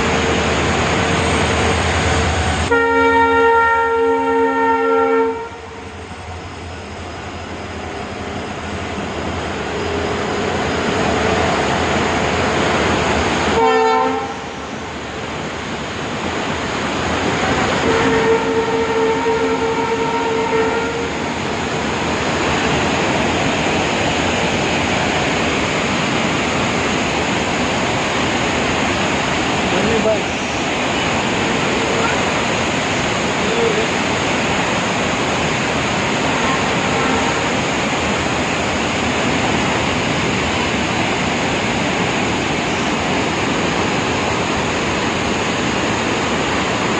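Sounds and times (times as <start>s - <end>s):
vehicle horn: 2.7s - 5.6s, 13.5s - 14.4s, 17.8s - 21.1s, 36.9s - 37.4s
waterfall roaring: 8.8s - 46.9s.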